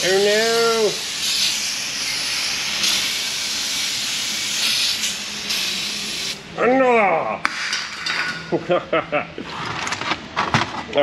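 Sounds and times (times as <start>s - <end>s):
aerosol spray hissing: 0.0s - 6.4s.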